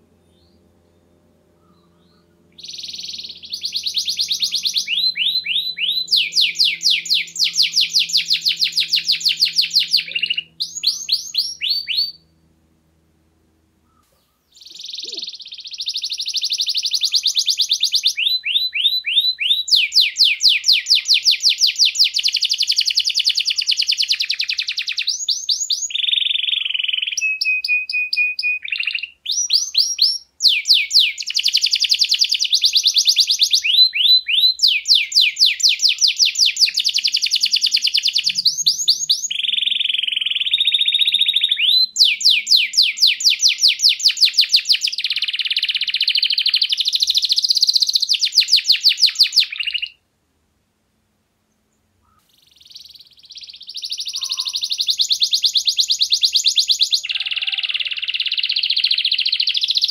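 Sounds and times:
canary singing trills: 0.1 - 12.5, 13.8 - 50.0, 52.0 - 59.9.

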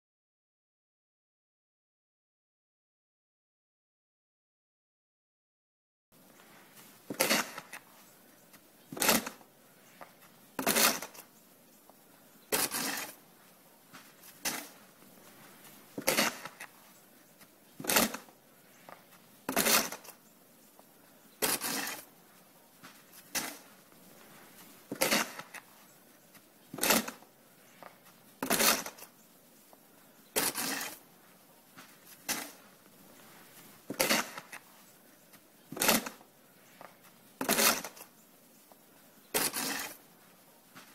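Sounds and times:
snow shovel scraping: 6.4 - 8.1, 8.8 - 11.3, 12.4 - 20.2, 21.4 - 25.9, 26.7 - 29.2, 30.3 - 35.0, 35.6 - 38.2, 39.3 - 40.9.

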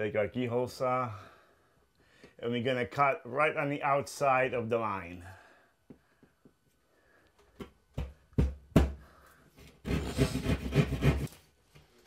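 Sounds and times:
saw rasping through drywall: 9.7 - 11.4.

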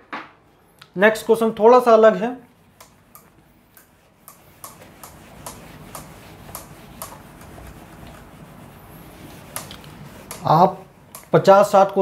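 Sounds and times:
duster ticking on whiteboard: 2.8 - 11.4
low rubbing noise: 4.0 - 10.4.

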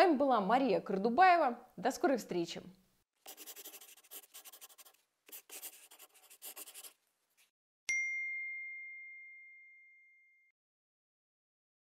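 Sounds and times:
pencil scratching on paper: 3.2 - 7.5
clear ding: 7.9 - 10.5.

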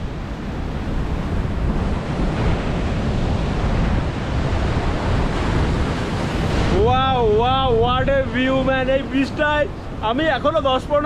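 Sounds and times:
sea surf rushing: 0.0 - 11.0
wind buffeting microphone: 0.0 - 11.0.

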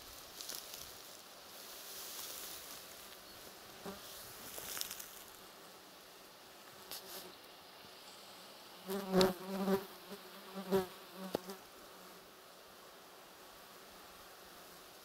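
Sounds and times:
flies buzzing: 8.7 - 15.0.

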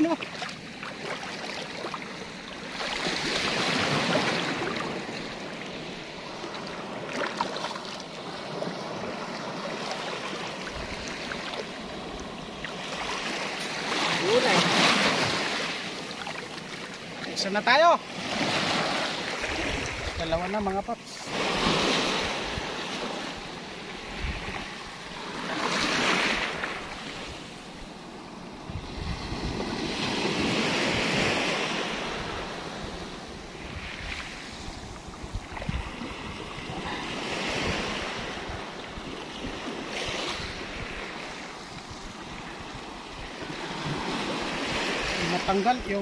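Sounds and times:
small waves breaking on beach: 0.0 - 46.0
wind buffeting microphone: 21.4 - 24.9, 28.6 - 46.0.

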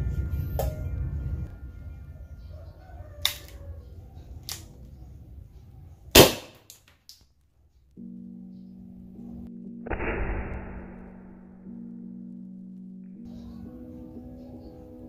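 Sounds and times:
light clicks of pistol: 4.4 - 4.8
paper pistol bang: 6.2 - 6.8.

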